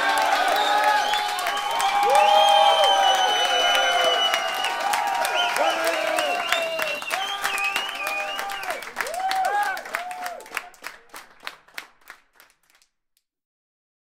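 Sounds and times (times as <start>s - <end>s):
people shouting and cheering: 0.0s - 10.9s
rhythmic hand clapping: 0.0s - 13.0s.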